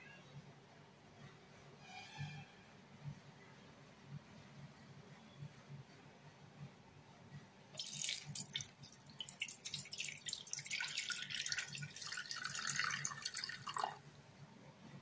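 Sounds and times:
water pouring into metal kettle: 7.8 - 14.0
water splashing on plastic: 7.8 - 14.0.

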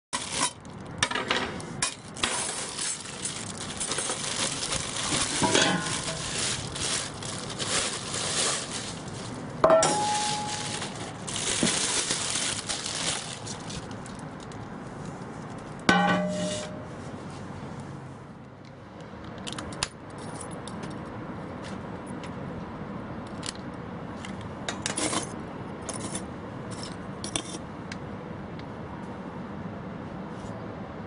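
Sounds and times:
scrapes clicks and rustles: 1.6 - 9.4
metallic clang of bucket: 9.7 - 10.7, 15.9 - 16.8.

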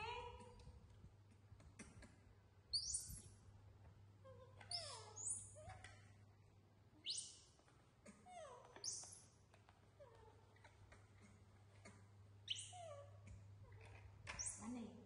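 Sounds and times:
monkeys squealing: 4.7 - 5.7.

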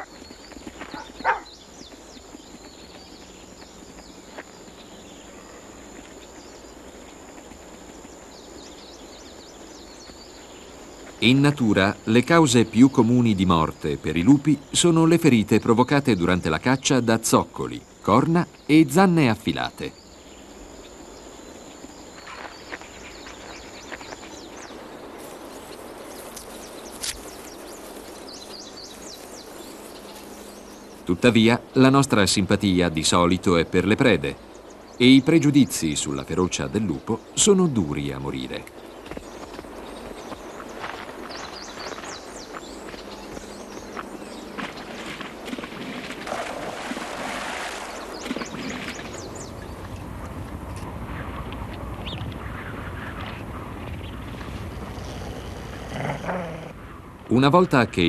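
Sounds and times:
faint high bird chirps: 0.0 - 7.2
steady background hiss: 0.0 - 58.0.

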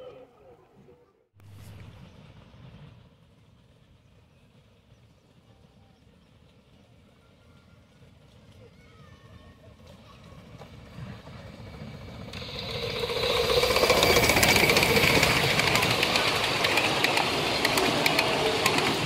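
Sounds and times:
miniature steam train passing: 1.5 - 19.0
wheel clicks on track: 11.8 - 19.0.

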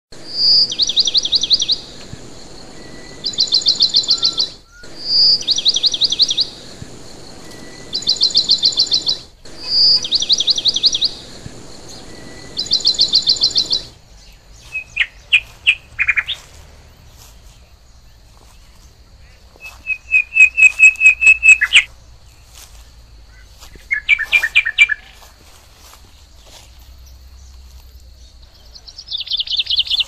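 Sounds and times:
short low bird chirps: 0.2 - 14.0, 19.2 - 21.9
songbird singing: 0.2 - 30.0.

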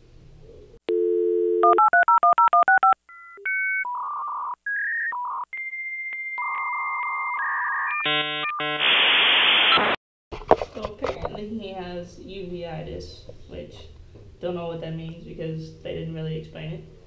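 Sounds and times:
dial tone: 0.9 - 5.4, 6.3 - 8.8
touch-tone dialing beeps: 0.9 - 5.4.

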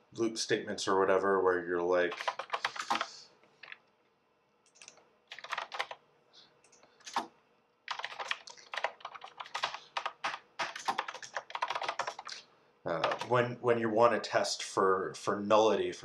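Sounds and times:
computer keyboard typing: 2.1 - 3.8, 4.7 - 6.0, 7.9 - 13.4.

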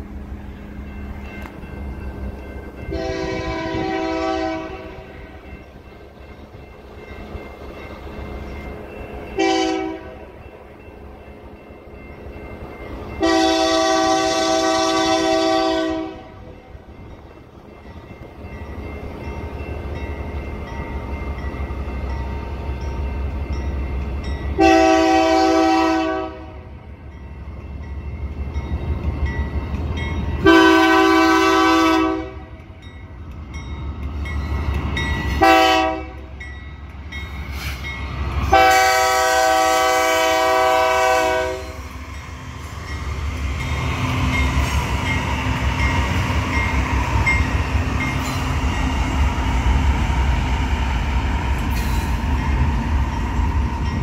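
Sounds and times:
crossing bell dinging: 0.0 - 54.0
locomotive air horn blasts: 2.9 - 5.2, 9.4 - 10.2, 13.2 - 16.4, 24.6 - 26.6, 30.4 - 32.5, 35.4 - 36.3, 38.4 - 41.9.

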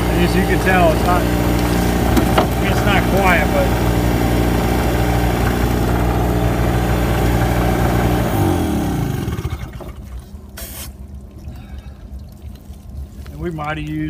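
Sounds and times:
generator engine running: 0.0 - 10.2
short hiss: 10.6 - 11.0.

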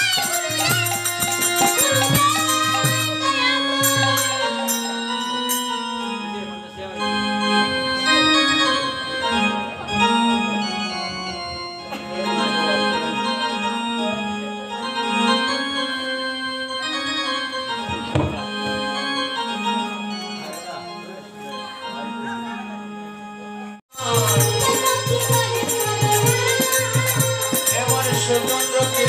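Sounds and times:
harmonium melody: 0.0 - 29.0
sharp knock: 18.1 - 18.5.

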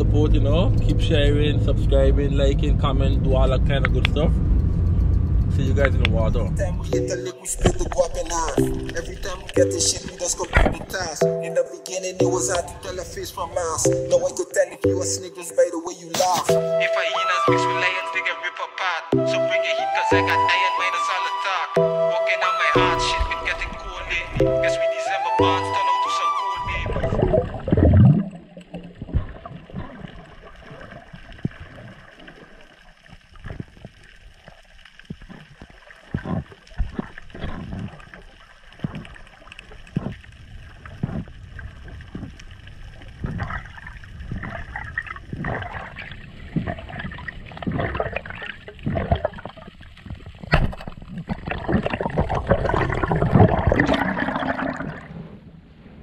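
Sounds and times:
water gurgling underwater: 4.4 - 11.4, 26.6 - 55.4
rushing water: 5.6 - 18.0, 19.4 - 55.3.

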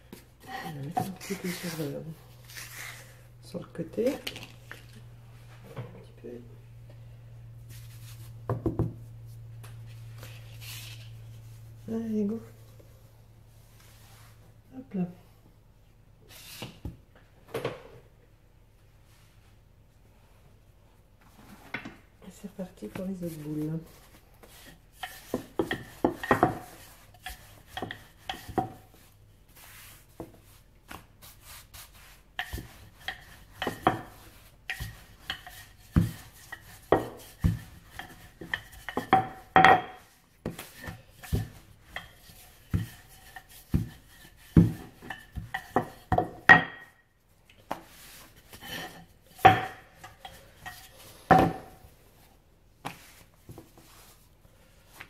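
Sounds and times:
hands rubbing dough: 0.0 - 3.4, 7.6 - 12.6, 22.4 - 55.0
rolling pin knocking on worktop: 49.4 - 49.8.

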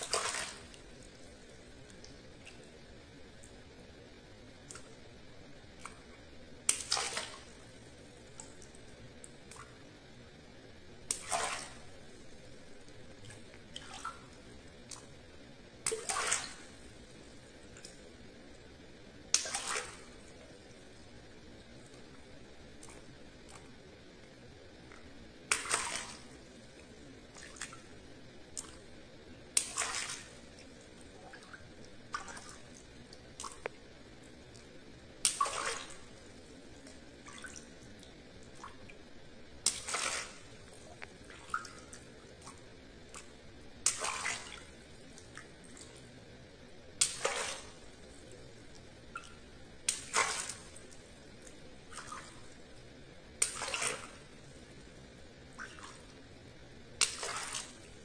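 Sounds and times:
water splashing: 0.0 - 2.8, 5.8 - 9.8, 11.0 - 15.2, 15.8 - 17.1, 19.3 - 23.8, 25.0 - 27.9, 29.5 - 33.8, 34.4 - 46.0, 47.0 - 48.4, 49.1 - 52.7, 53.4 - 54.4, 55.5 - 56.2, 57.0 - 58.0
water dripping: 0.0 - 46.2, 46.9 - 58.0.

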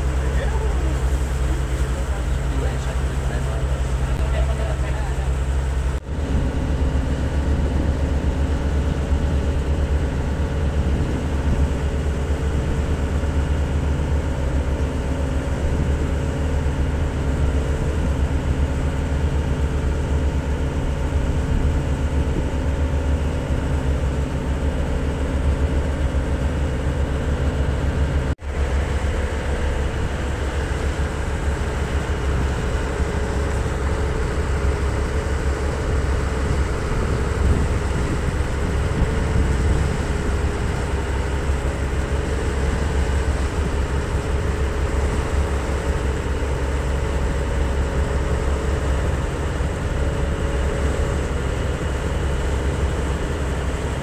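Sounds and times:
wake and spray rushing: 0.0 - 4.8
boat engines droning: 0.0 - 54.0.

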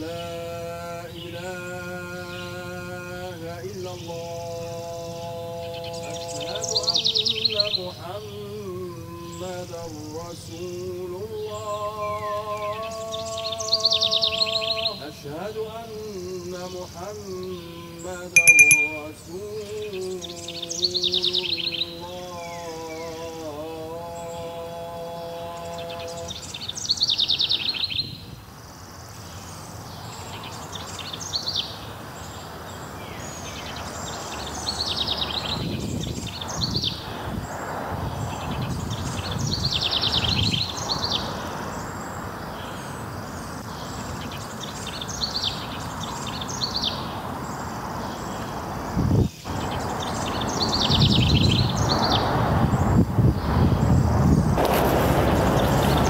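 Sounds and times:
outdoor background noise: 0.0 - 56.0
small birds trilling: 5.1 - 19.0, 25.6 - 54.5
man singing held note: 18.4 - 19.2.

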